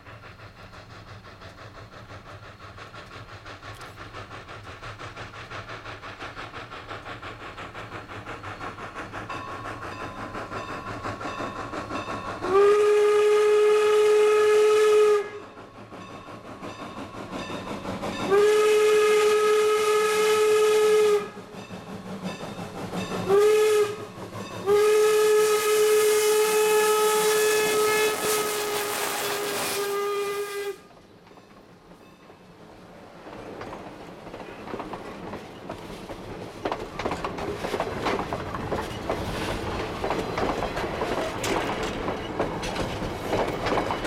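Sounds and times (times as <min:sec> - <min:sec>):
steam locomotive exhaust beats: 0:00.0 - 0:44.0
steam whistle blasts: 0:12.4 - 0:15.5, 0:18.2 - 0:21.4, 0:23.3 - 0:30.9.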